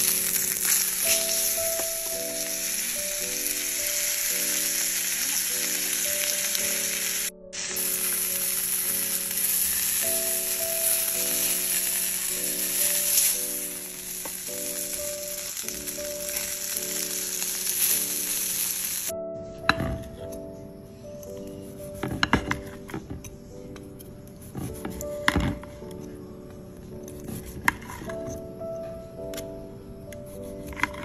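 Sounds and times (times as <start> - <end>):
steak sizzling in frying pan: 0.0 - 19.1.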